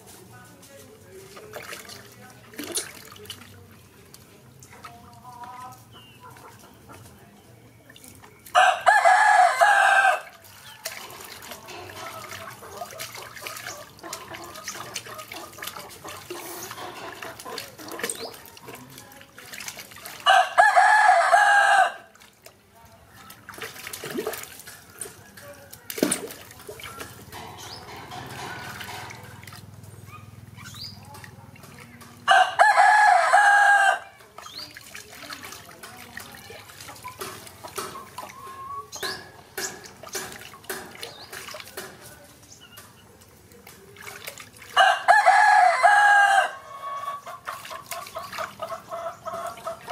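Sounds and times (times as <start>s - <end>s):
water splashing in plastic tub: 1.0s - 7.2s, 7.8s - 30.0s, 30.7s - 49.9s
rooster crowing: 8.6s - 10.3s, 20.3s - 22.1s, 32.3s - 34.2s, 44.8s - 47.1s.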